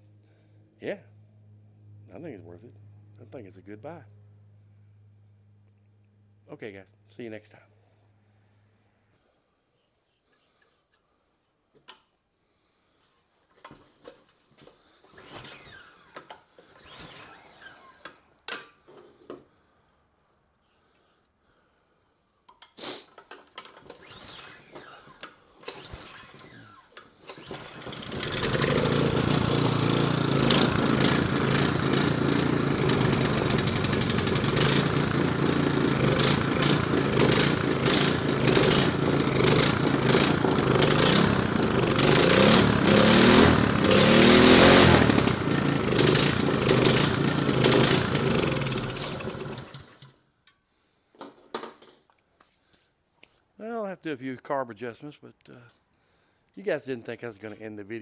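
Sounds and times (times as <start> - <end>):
snowblower engine starting and running: 14.6 - 18.2, 22.8 - 50.2.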